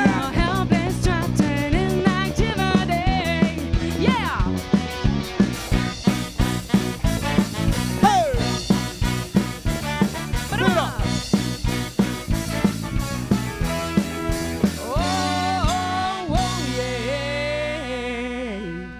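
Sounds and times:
live ska band playing: 0:00.0 - 0:18.9
horn section: 0:04.2 - 0:16.7.

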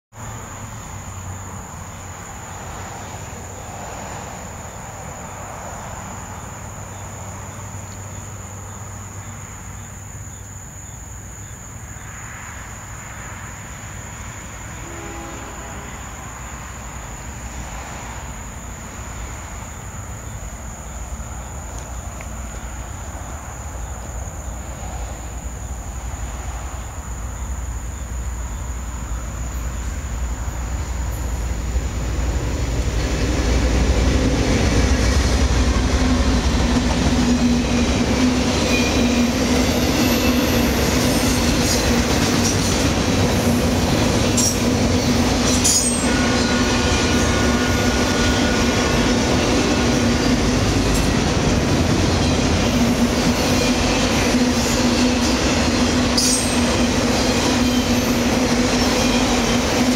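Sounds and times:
diesel locomotives rumbling: 0:00.1 - 0:59.9
insect chorus: 0:00.1 - 0:59.9.

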